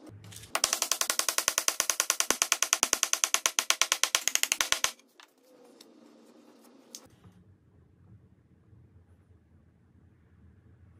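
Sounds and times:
rapid knocking on wood: 0.6 - 5.0.

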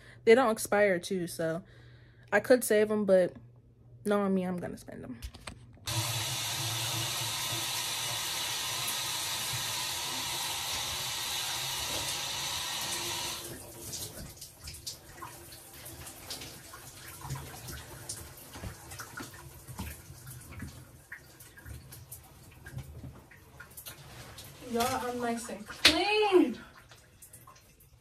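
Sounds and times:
shower running: 5.9 - 28.0.

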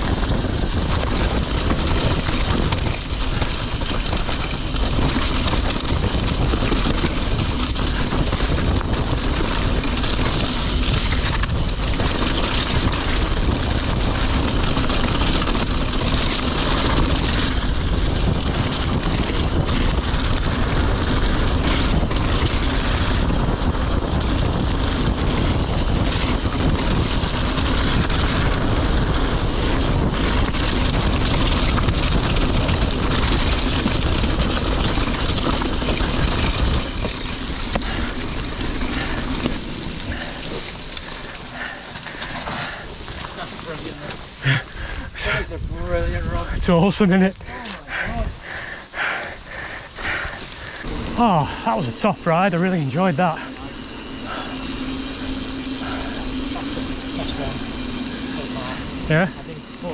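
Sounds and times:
bike knocks and rattles: 0.0 - 44.6
bike tyres on dirt track: 0.0 - 59.9
wind buffeting microphone: 0.0 - 59.9.

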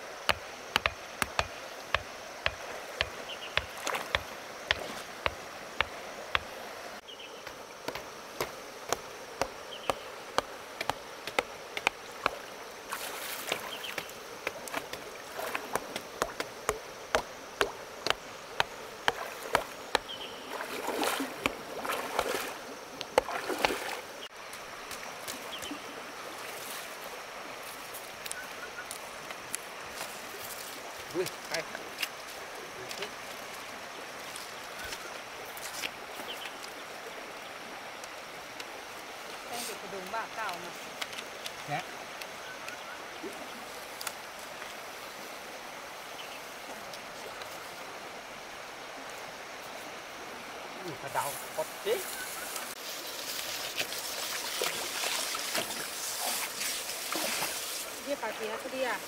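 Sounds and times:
running water rushing: 0.0 - 59.0
sharp knocks: 0.3 - 6.5.

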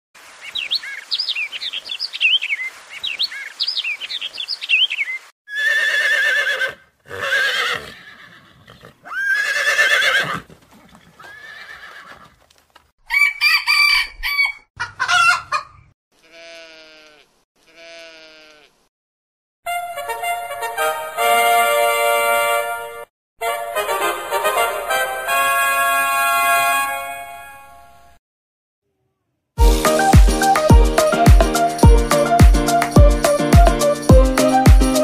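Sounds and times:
birds chirping: 0.4 - 5.3
rooster crowing: 13.0 - 15.6
short farm animal calls: 13.8 - 18.8.

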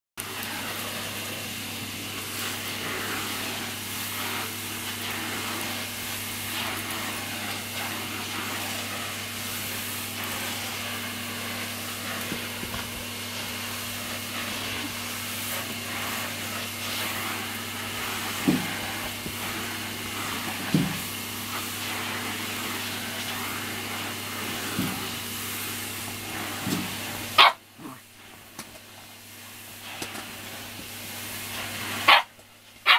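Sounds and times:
vacuum cleaner running: 0.2 - 32.9
puppy yapping: 27.4 - 27.6, 32.1 - 32.9.

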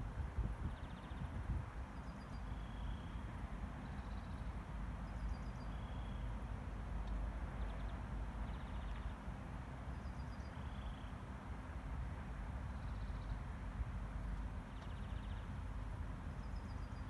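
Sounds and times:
songbird singing: 0.6 - 6.4, 7.0 - 9.3, 9.9 - 11.2, 12.7 - 13.5, 14.2 - 17.0.

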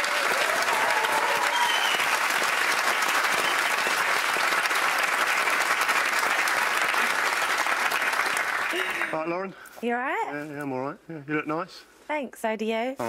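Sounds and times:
faint cheers: 0.0 - 2.2
audience applauding: 0.0 - 9.2.

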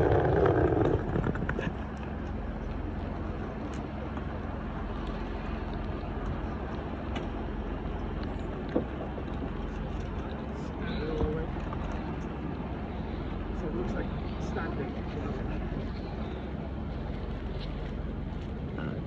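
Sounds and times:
train diesel engine idling: 2.4 - 19.0.

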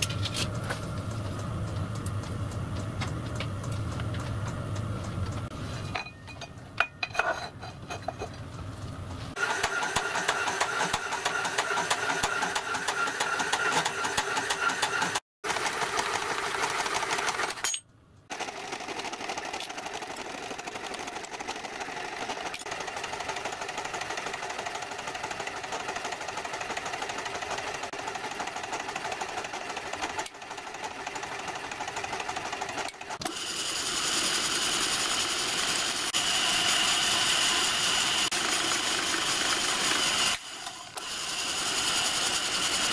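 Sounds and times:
machine tools running: 8.5 - 42.9
milling machine cutting metal: 32.9 - 42.9.

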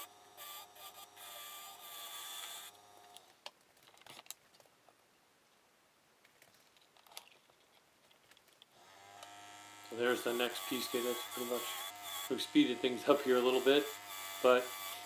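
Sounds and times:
wood lathe motor running: 8.8 - 15.0
turning tool scraping wood: 9.1 - 15.0.

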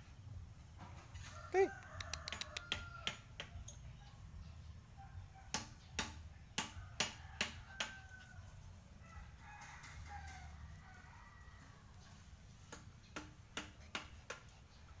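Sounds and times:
sharp clicks: 2.0 - 2.8.

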